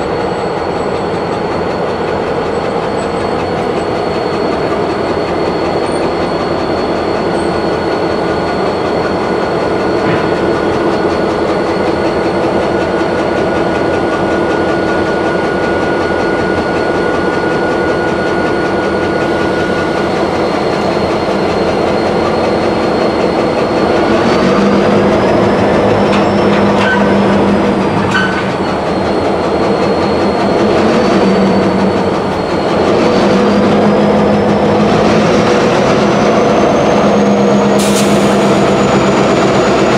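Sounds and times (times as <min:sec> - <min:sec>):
diesel locomotive engine running: 0:00.0 - 0:39.9.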